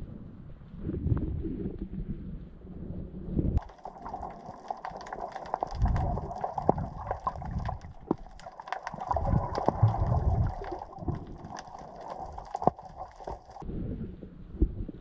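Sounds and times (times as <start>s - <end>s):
muffled underwater water movement: 0.0s - 15.0s
sharp clicks and crackles: 3.6s - 13.6s.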